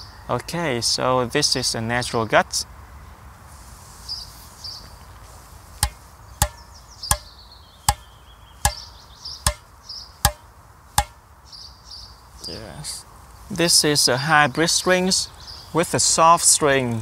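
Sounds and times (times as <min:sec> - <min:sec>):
taps on racquet strings: 0:05.8 - 0:07.3, 0:08.6 - 0:08.8.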